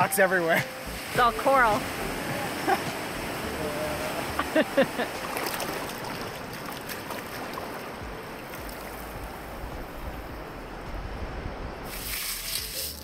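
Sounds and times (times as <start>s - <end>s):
small waves washing on sand: 0.0s - 13.0s
wind rumble on microphone: 8.0s - 12.7s.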